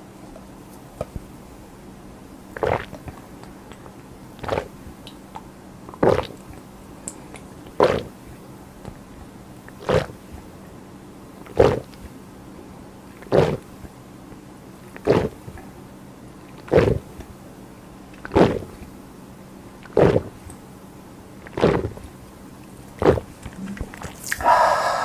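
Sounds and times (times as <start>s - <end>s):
person gulping fizzy drink: 2.6s - 3.1s, 23.0s - 25.0s.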